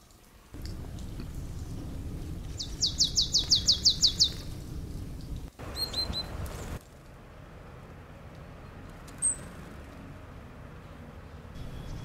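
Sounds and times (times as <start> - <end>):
low background rumble: 0.6 - 6.8
songbird singing: 0.6 - 6.8, 10.8 - 12.0.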